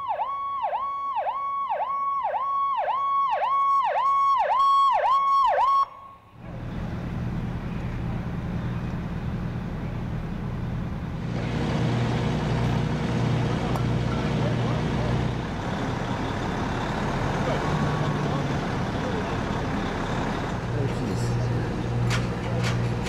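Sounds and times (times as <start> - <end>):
electronic yelp siren: 0.0 - 6.4
low engine running: 6.4 - 23.0.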